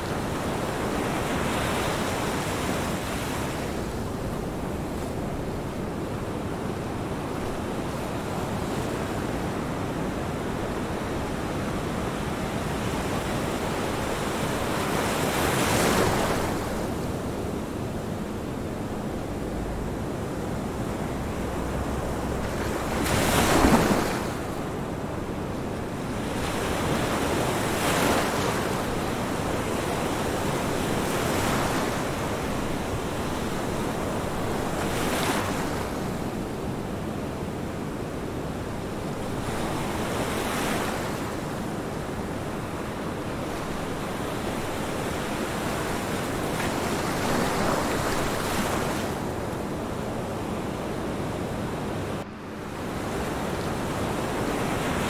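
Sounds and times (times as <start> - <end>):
ocean waves rushing: 19.2 - 25.0.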